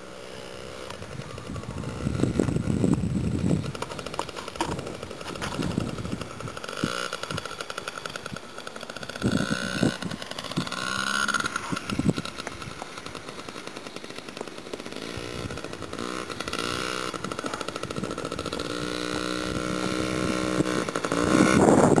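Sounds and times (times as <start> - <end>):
mini dirt bike engine: 0.0 - 22.0.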